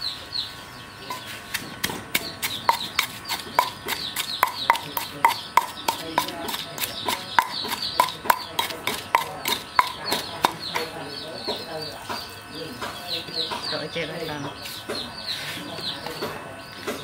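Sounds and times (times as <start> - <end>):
pestle pounding in stone mortar: 1.1 - 12.2.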